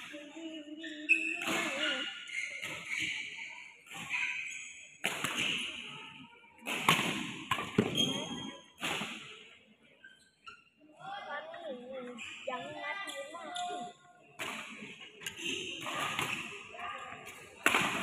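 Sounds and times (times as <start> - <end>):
rackets striking shuttlecock: 1.4 - 3.2, 3.8 - 5.9, 14.4 - 18.0.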